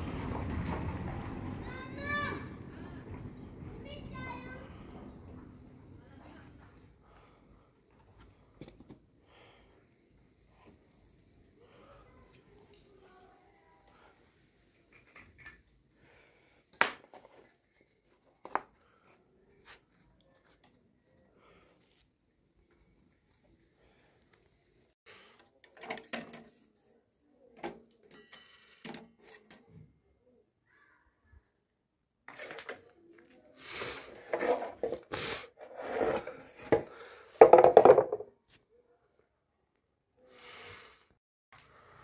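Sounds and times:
wood scraping on wood: 32.3 - 38.2
wooden knocks: 37.4 - 38.3.

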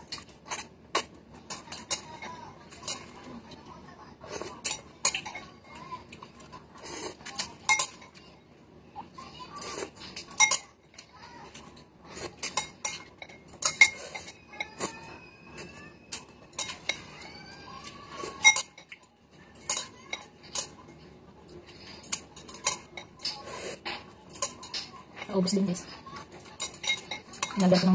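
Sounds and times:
utensils clinking on ceramic bowl: 4.3 - 6.5, 7.2 - 8.3, 10.0 - 21.0, 21.7 - 27.9
slurping and chewing: 6.0 - 8.2, 9.6 - 10.7, 11.3 - 24.9.

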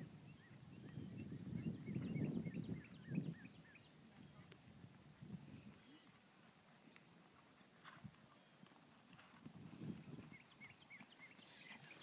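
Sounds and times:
muffled hoofbeats on grass: 4.0 - 12.0.

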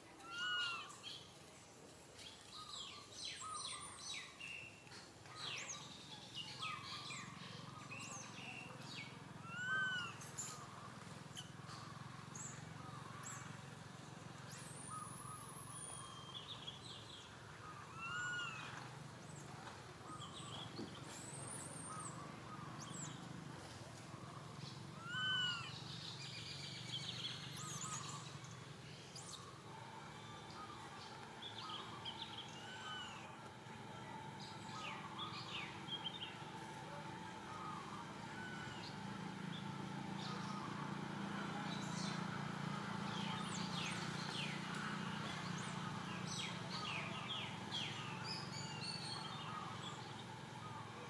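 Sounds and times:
outdoor background noise: 0.0 - 51.0
faint bird chirps: 0.1 - 1.4
steady low hum: 19.0 - 51.0.

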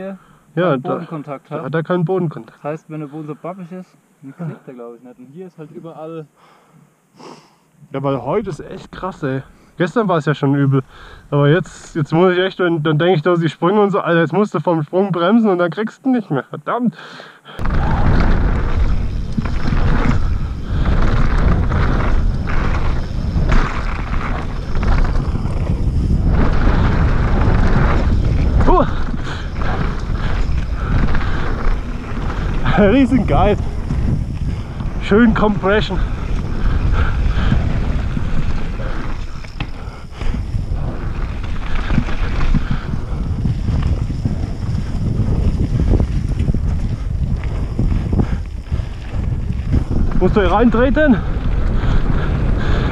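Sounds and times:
low rumble: 17.6 - 52.9
wind buffeting microphone: 17.6 - 52.9.

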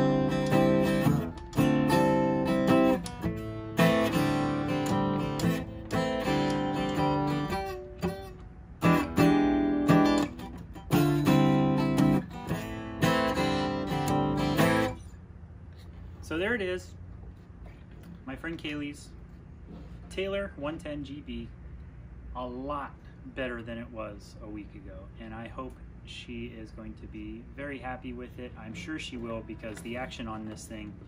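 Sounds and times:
acoustic guitar strummed in chords: 0.0 - 15.2.

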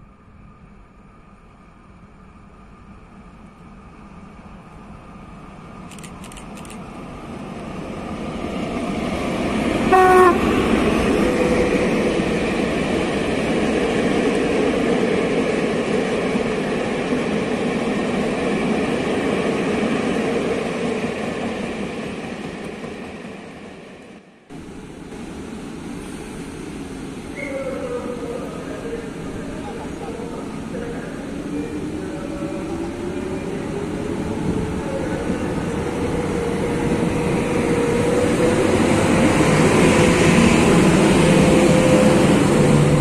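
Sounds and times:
freight train rumbling past: 0.0 - 43.0
train horn blast: 9.9 - 10.6.

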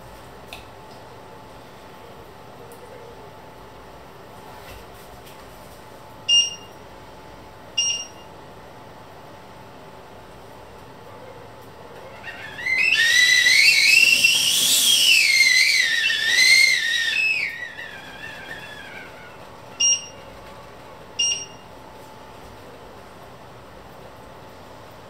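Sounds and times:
short electronic beeps: 6.3 - 6.7, 7.8 - 8.2, 19.8 - 20.1, 21.2 - 21.6
high wavering whistle: 12.4 - 19.2.

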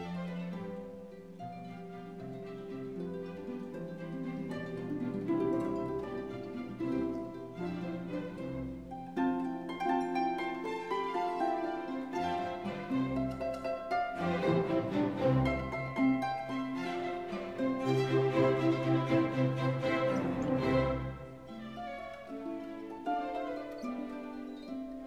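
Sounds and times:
string instrument music: 0.0 - 25.0.

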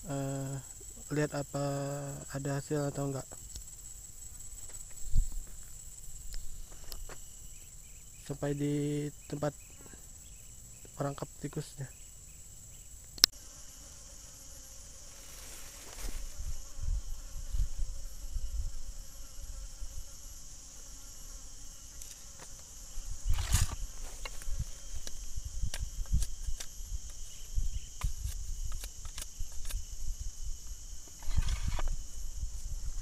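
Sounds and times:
high-pitched insect drone: 0.0 - 33.0
sharp click: 13.1 - 13.3.

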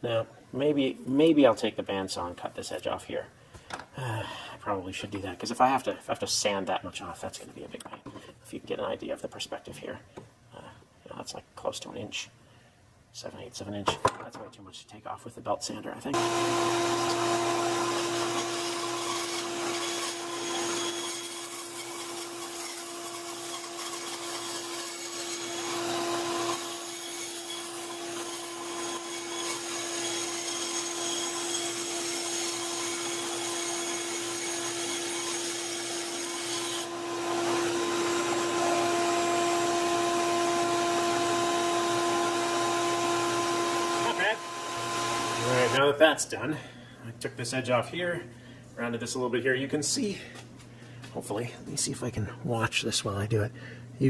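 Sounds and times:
bandsaw motor hum: 16.2 - 45.8
saw blade rasping wood: 16.2 - 45.8.

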